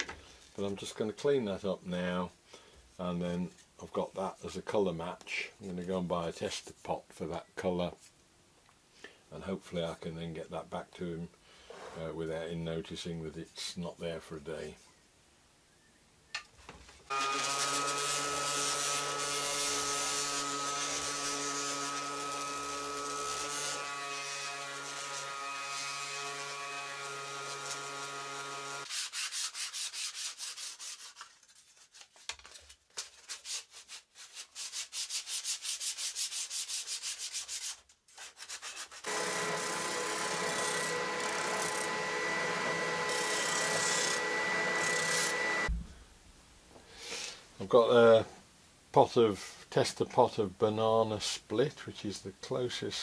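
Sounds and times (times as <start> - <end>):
palm sander on wood: 17.1 - 30.1, 38.7 - 45.7
hand-sanding with sandpaper: 28.8 - 31.9, 33.3 - 39.1
bobbin sander whine: 39.1 - 45.7.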